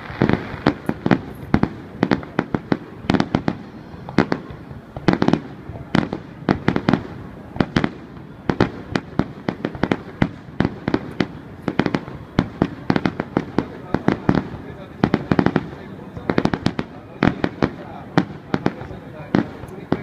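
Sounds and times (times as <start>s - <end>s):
fireworks bursting: 0.0s - 20.0s.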